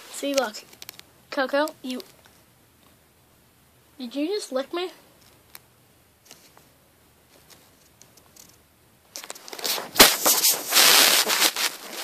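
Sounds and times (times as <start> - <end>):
faint rustles and ticks: 0.1 - 3.0, 5.2 - 9.8.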